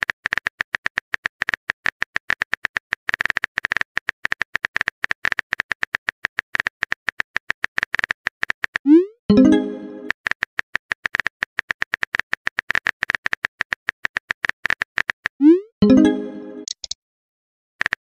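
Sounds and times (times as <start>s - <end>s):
phone keyboard tapping clicks: 16.6s - 17.0s.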